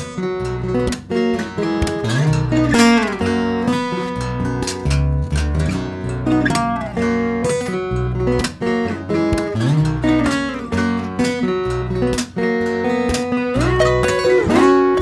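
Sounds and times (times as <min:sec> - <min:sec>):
fingerstyle acoustic guitar: 0:00.0 - 0:15.0.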